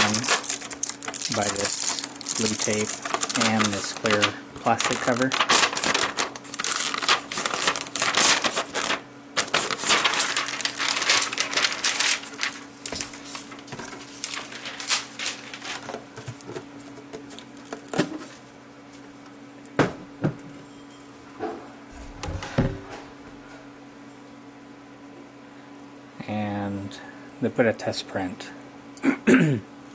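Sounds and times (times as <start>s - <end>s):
plastic cover and tape crinkling: 0.0s - 18.4s.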